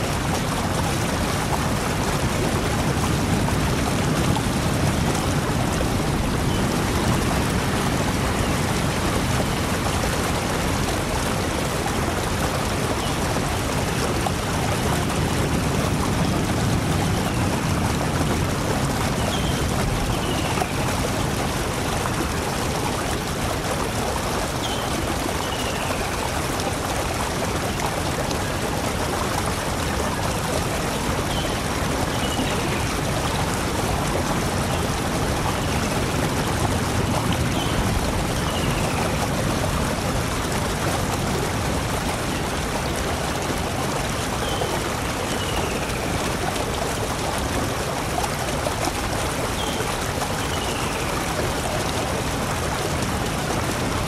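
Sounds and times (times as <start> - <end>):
flowing water rushing: 0.0 - 54.0.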